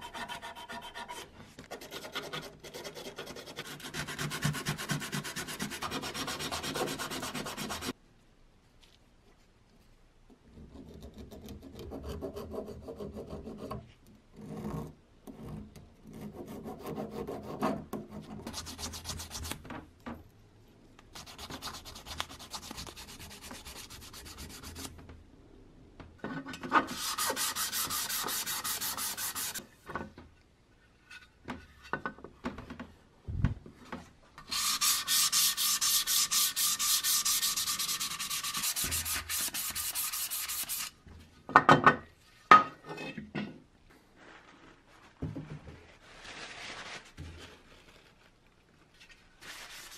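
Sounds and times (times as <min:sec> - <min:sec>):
file rasping on metal: 0:00.0 - 0:07.9, 0:34.5 - 0:40.9
sandpaper strokes on metal: 0:02.0 - 0:07.9, 0:26.9 - 0:29.6, 0:34.5 - 0:41.0.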